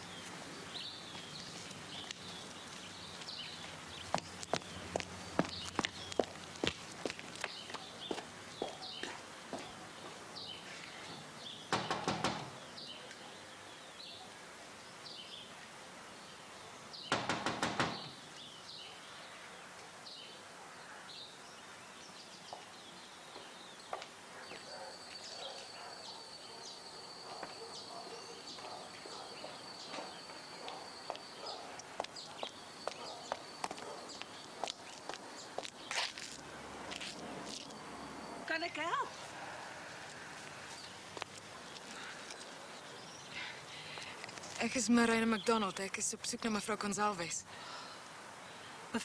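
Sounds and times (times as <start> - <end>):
small birds chirping: 0.0 - 49.0
rapid knocking on a door: 11.7 - 12.6, 17.1 - 18.1.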